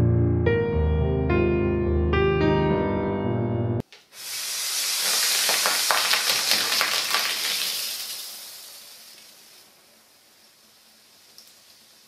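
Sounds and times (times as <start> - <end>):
soda geyser fizzing hiss: 4.1 - 12.0.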